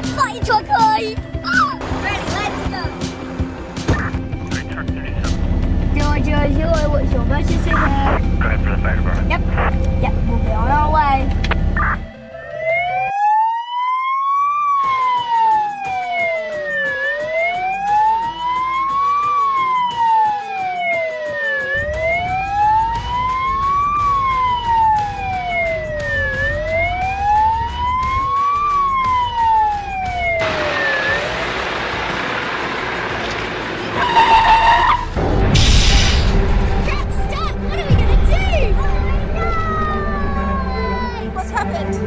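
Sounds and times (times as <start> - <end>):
truck engine rumble: 0.0 - 12.3, 21.8 - 42.0
fire truck siren wailing: 1.4 - 6.0, 7.3 - 35.2, 38.8 - 42.0.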